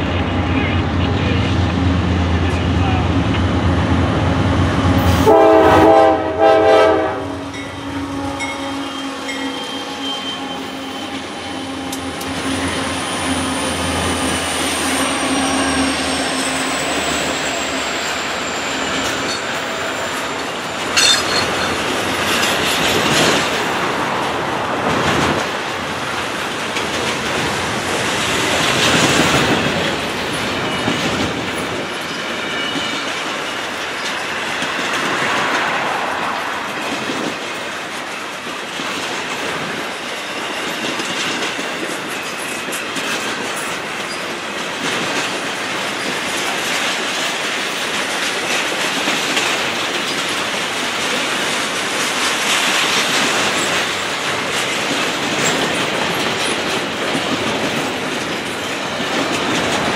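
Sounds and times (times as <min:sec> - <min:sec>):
diesel locomotive hum: 0:00.0 - 0:40.3
high wheel squeal: 0:07.6 - 0:22.7
freight train wheels clattering: 0:10.9 - 0:59.9
sharp metal clank: 0:20.9 - 0:21.8.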